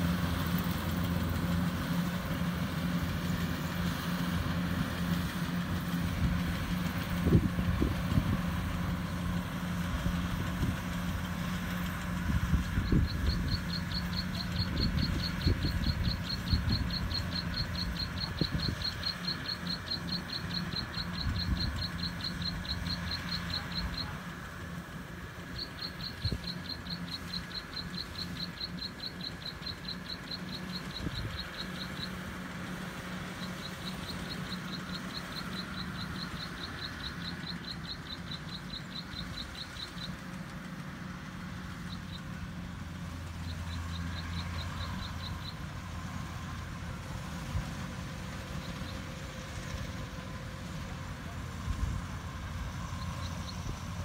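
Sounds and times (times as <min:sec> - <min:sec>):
distant diesel engine hum: 0:00.0 - 0:54.0
rapid high chirping: 0:11.7 - 0:24.2, 0:25.4 - 0:40.3.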